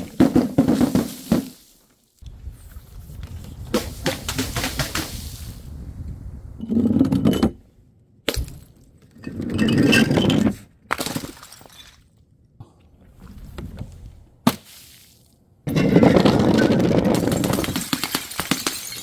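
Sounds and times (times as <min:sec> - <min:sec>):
glass shattering: 0:15.7 - 0:19.0
sharp glass crack: 0:17.2 - 0:19.0.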